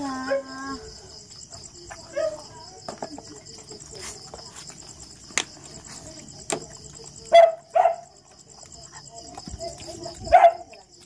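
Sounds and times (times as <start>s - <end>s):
crickets chirping: 0.0s - 11.0s
dog barking: 0.2s - 0.6s, 2.1s - 2.4s, 7.3s - 8.2s, 10.3s - 10.8s.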